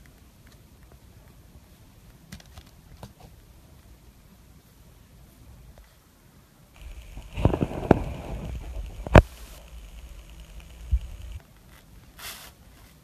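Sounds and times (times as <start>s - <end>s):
short hissing burst: 6.8s - 11.4s, 12.2s - 12.6s.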